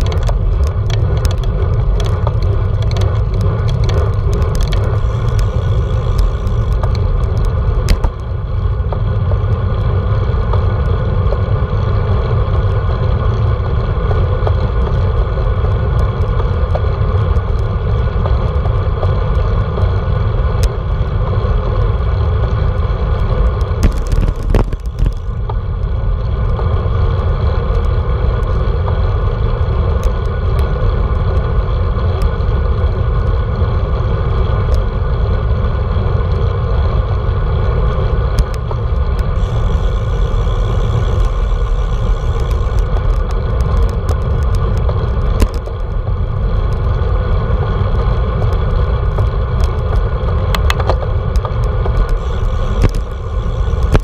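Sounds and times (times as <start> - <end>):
small clicks and rattles: 0.0 - 9.3, 23.2 - 26.7, 38.2 - 47.1, 47.9 - 54.0
bike tyres rolling on asphalt: 0.0 - 54.0
wind rushing over camera: 0.0 - 54.0.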